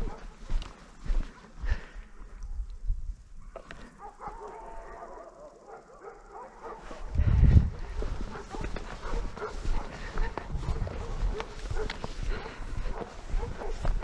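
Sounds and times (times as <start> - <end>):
dogs barking: 0.0 - 0.5, 3.4 - 14.0.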